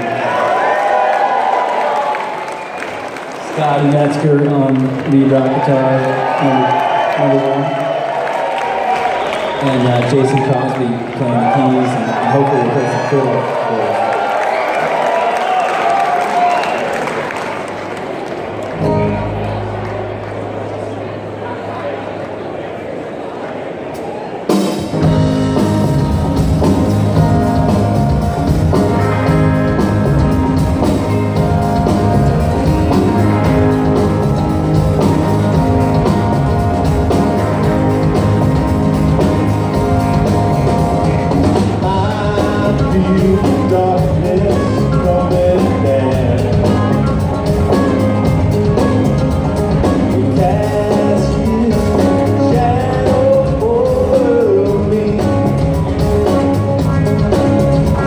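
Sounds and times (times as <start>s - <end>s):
live rock band playing: 18.6s - 21.2s, 23.9s - 58.0s
wavering melodic lead line: 18.8s - 21.2s, 25.0s - 58.0s.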